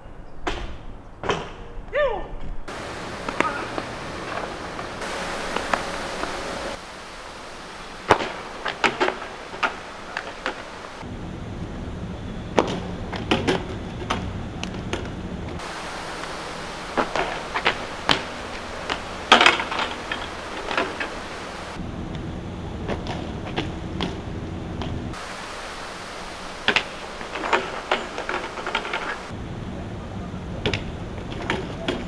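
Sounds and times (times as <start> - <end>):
steady outdoor hiss: 0.0 - 32.0
shoes slapping on asphalt: 2.7 - 4.9.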